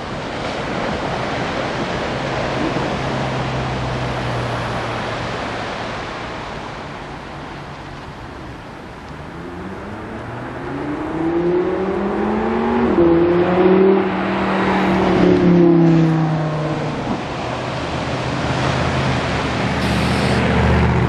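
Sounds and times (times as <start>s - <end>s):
car accelerating: 9.0s - 21.0s
surf hissing: 14.5s - 21.0s.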